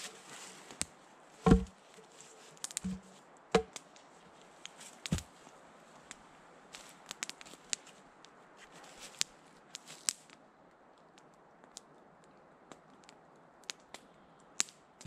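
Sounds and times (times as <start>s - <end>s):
twigs and leaves crackling: 0.0s - 10.3s.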